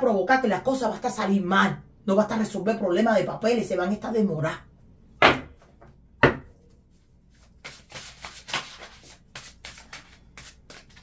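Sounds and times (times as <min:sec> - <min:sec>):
cards being shuffled: 0:07.3 - 0:11.0.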